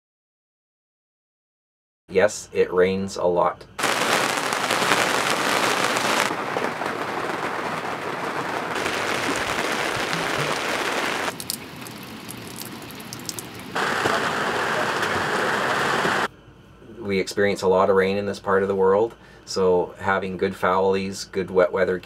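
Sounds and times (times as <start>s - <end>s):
rain falling on water: 3.8s - 16.3s
separate raindrops: 3.8s - 16.3s.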